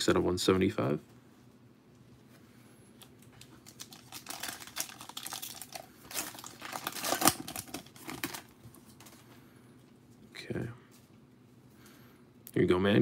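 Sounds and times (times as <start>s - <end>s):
foil wrapper crinkling and tearing: 3.4s - 9.2s.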